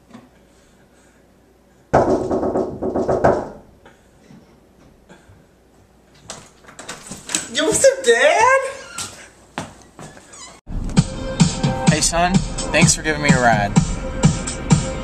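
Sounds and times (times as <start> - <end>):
knocking on glass door: 1.9 - 3.6.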